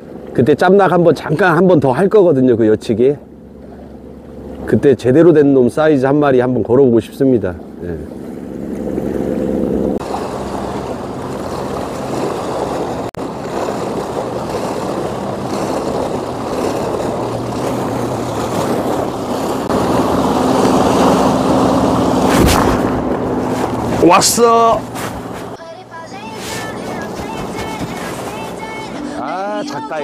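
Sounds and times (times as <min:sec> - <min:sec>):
motorboat engine hum: 0:00.0 - 0:30.0
sea washing against rocks: 0:10.0 - 0:25.6, 0:26.3 - 0:29.1
wind noise: 0:10.0 - 0:25.6.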